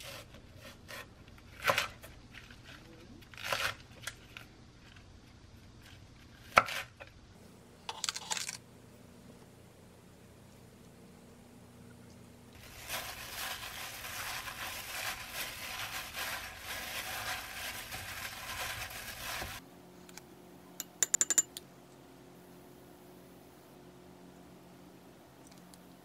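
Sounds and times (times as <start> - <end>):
plastic glove crinkling: 12.6 - 19.6
metal spoon clinking on glass: 20.8 - 21.6.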